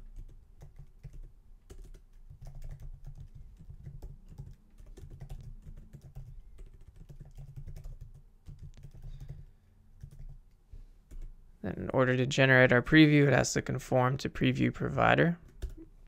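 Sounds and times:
computer keyboard typing: 0.0 - 10.5, 11.1 - 11.3, 15.4 - 15.9.

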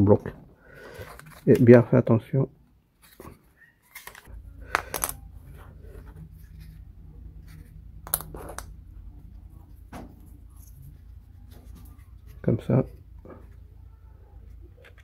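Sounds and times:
steady low hum: 4.3 - 15.0.

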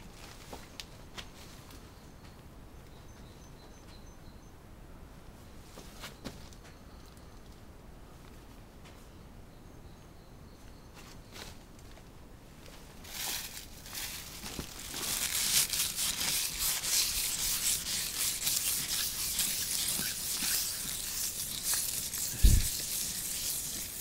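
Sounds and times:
close rustling and scraping: 12.6 - 24.0.

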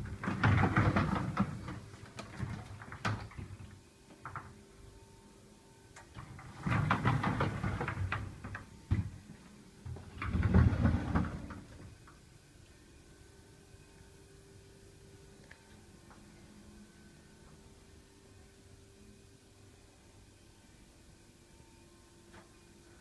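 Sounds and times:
cupboard doors opening and shutting: 0.0 - 4.6, 6.0 - 9.2, 9.9 - 12.0
faint steady hum: 0.0 - 23.0.

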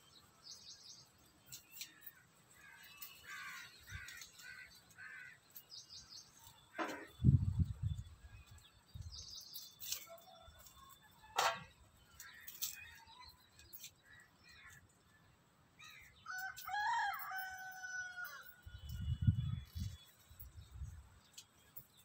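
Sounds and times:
small birds chirping: 0.0 - 16.4
rooster crowing: 16.2 - 18.6.

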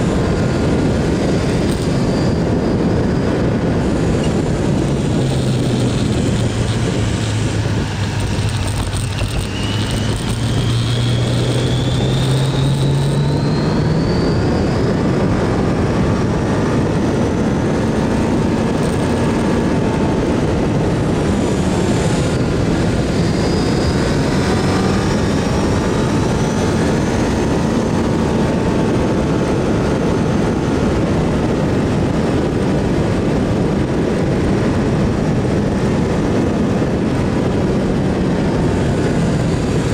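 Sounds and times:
heavy wind noise: 0.0 - 39.9
motorcycle engine accelerating: 0.0 - 39.9.

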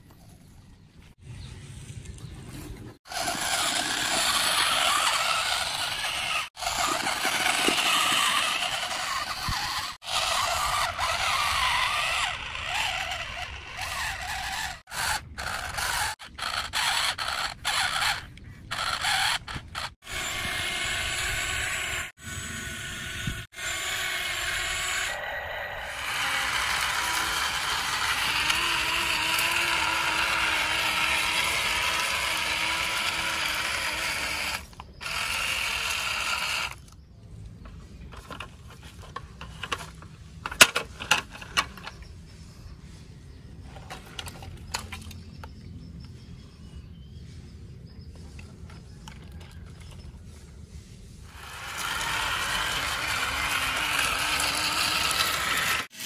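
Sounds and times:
toy motors whirring: 3.0 - 37.0, 37.6 - 42.1, 43.6 - 45.2, 51.2 - 56.0
plastic parts clicking: 38.1 - 42.0.

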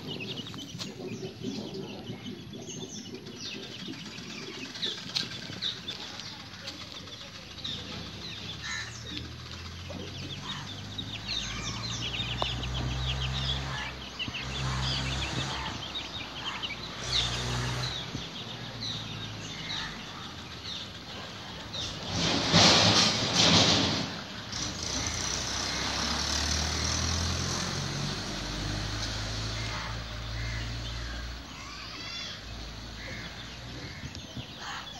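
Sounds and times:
chicks peeping: 0.0 - 26.1, 26.7 - 34.9
loud rustling: 19.6 - 25.9.

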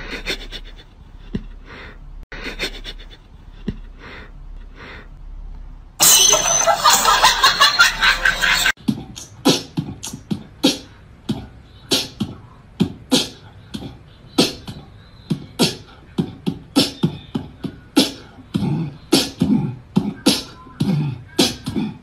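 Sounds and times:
beatboxing percussive beat: 8.8 - 22.0.

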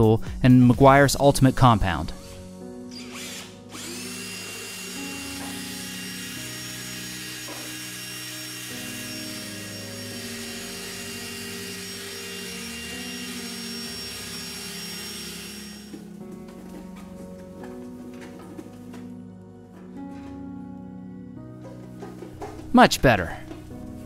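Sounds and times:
background music: 0.0 - 24.0
drill motor whirring: 1.6 - 16.0.

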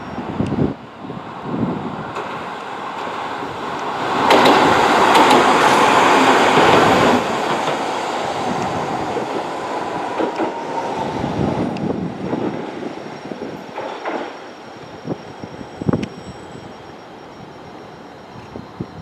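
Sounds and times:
tram passing on rails: 0.0 - 19.0
tram wheel clicks: 3.7 - 5.8.

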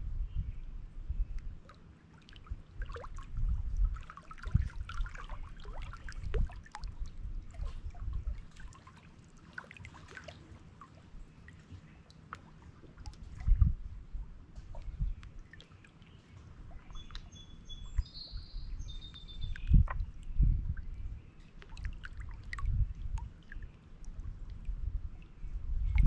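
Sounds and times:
water trickling and dripping: 1.4 - 13.9, 14.5 - 26.0
waves lapping against rocks: 2.1 - 13.6.

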